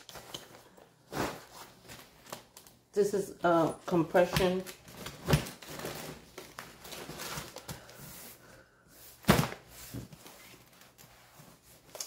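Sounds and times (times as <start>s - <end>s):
fabric rustling: 0.6s - 2.0s.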